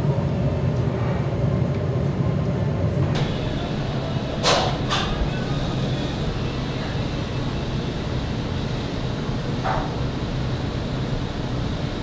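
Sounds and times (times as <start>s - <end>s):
restaurant room rumble: 3.0s - 12.0s.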